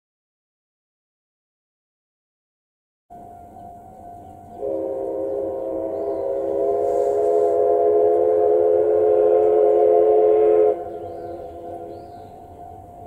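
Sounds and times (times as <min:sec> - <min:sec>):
steam locomotive chime whistle: 0:03.1 - 0:13.0.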